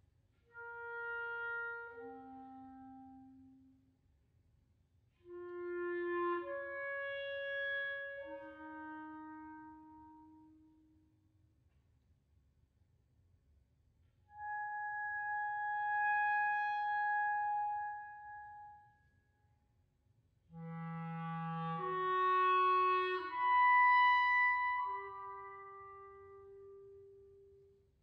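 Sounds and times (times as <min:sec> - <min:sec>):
electric clarinet with delay: 0:00.5 - 0:03.8, 0:05.2 - 0:11.0, 0:14.3 - 0:19.0, 0:20.5 - 0:27.8.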